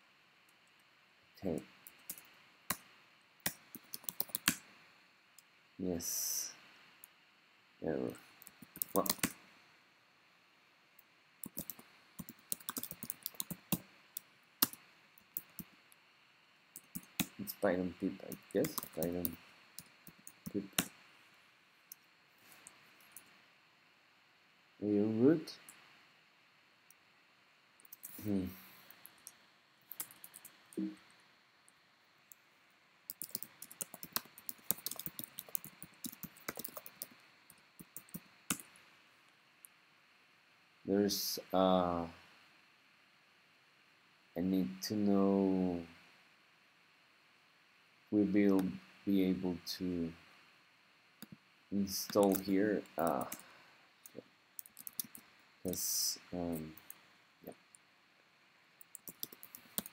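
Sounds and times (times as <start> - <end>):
keyboard typing: 3.4 - 4.6, 8.4 - 9.4, 11.4 - 15.7, 16.8 - 17.6, 18.2 - 20.9, 27.8 - 30.9, 33.1 - 38.7, 52.1 - 53.4, 54.0 - 55.8, 58.8 - 59.9.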